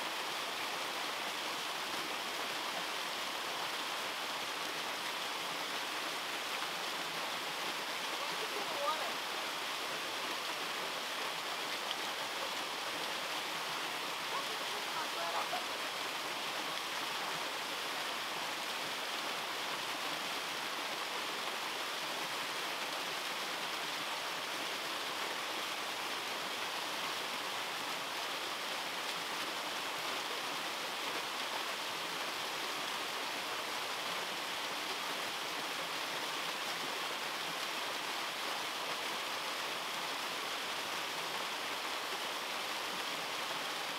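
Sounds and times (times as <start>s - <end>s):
small waterfall rushing: 0.0s - 43.9s.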